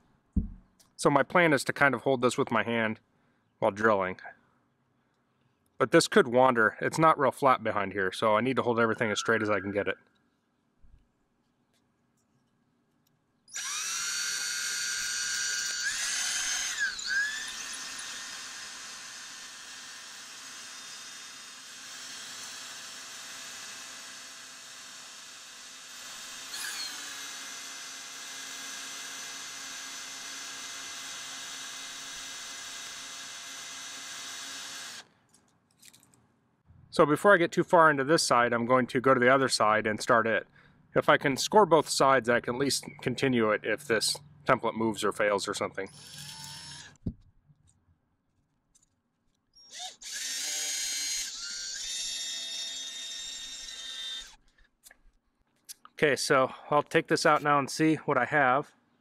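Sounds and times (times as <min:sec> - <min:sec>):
drill hole saw grinding brick: 0:13.5 - 0:35.1, 0:45.9 - 0:47.0, 0:49.6 - 0:54.5.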